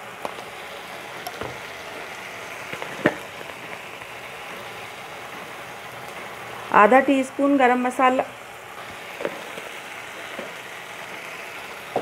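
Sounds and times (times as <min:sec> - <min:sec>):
gravy sizzling in a pan: 0:00.0 - 0:12.0.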